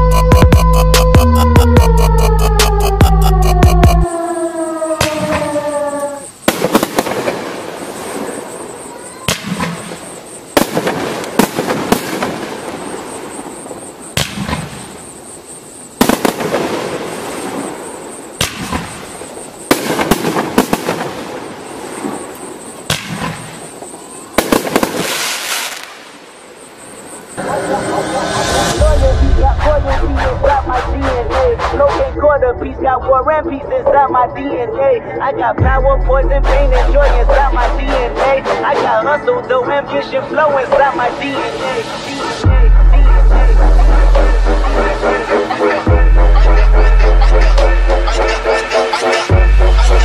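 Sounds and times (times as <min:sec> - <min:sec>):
firework crackling: 0:05.0 - 0:32.2
firework bangs: 0:05.0 - 0:32.3.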